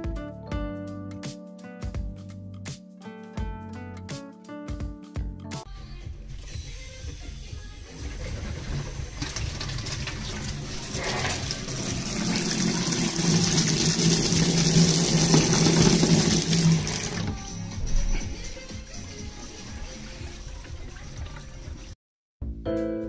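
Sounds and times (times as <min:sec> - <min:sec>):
water running from tap: 0:07.8 - 0:17.4, 0:19.2 - 0:21.8.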